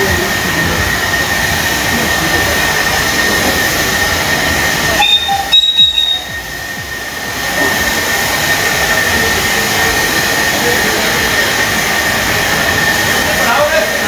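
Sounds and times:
steam locomotive hissing: 0.0s - 14.0s
short high-pitched tone: 4.9s - 6.5s.

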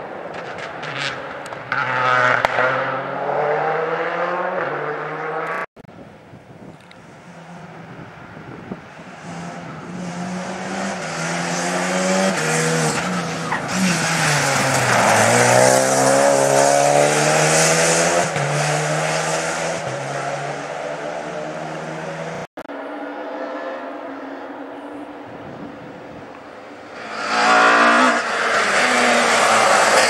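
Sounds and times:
rally car engine upshifting: 0.3s - 5.7s, 9.1s - 22.5s, 26.4s - 30.0s.

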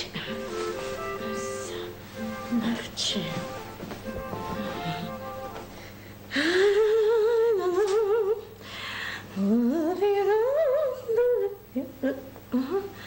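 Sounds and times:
woman humming: 0.0s - 5.6s, 9.4s - 13.0s.

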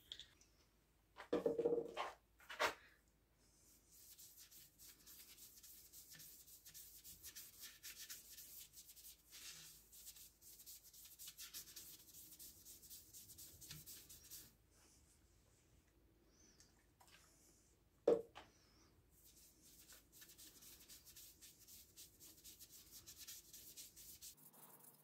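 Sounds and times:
hand rubbing dye onto wood: 19.2s - 25.0s.

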